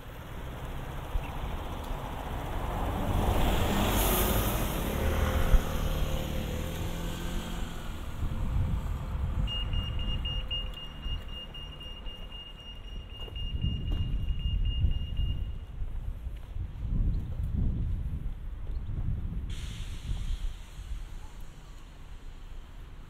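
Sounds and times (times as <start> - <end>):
car passing: 0.0 - 11.9.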